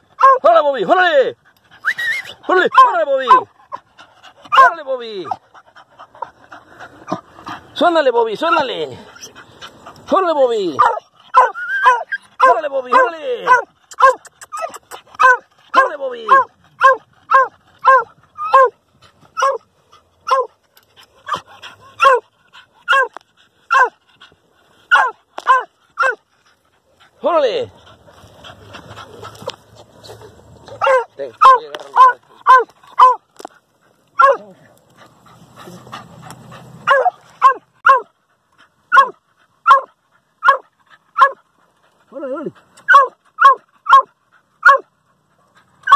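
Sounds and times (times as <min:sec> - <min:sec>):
dog barking in a burrow: 0:00.1 - 0:01.3, 0:02.1 - 0:03.9, 0:04.5 - 0:05.4, 0:10.1 - 0:20.6, 0:21.2 - 0:24.0, 0:24.9 - 0:26.2, 0:30.7 - 0:33.5, 0:34.2 - 0:34.6, 0:35.8 - 0:38.2, 0:38.9 - 0:41.4, 0:42.1 - 0:45.9
scuffling and scraping: 0:24.2 - 0:37.5.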